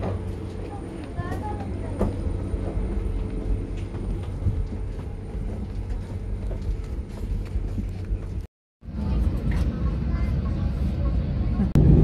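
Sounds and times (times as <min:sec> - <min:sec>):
machinery rumble and hum: 0:00.0 - 0:12.0.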